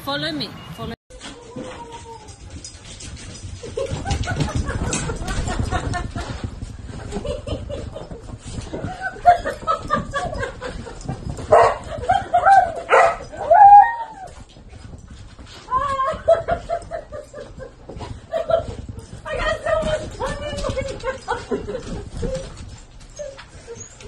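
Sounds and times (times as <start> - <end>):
dogs yipping and whining: 1.2 - 6.3, 7.2 - 24.0
dogs calling: 9.0 - 14.3.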